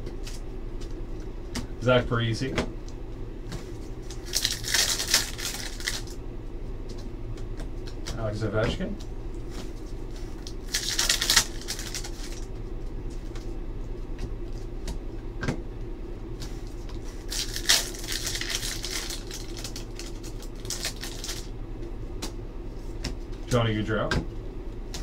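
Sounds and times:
cards flicking and rustling: 3.5s - 6.2s, 9.4s - 12.5s, 16.4s - 21.5s.

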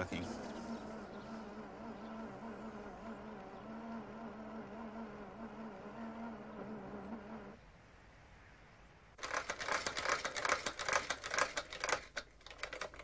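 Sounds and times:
small motor humming: 0.0s - 7.6s.

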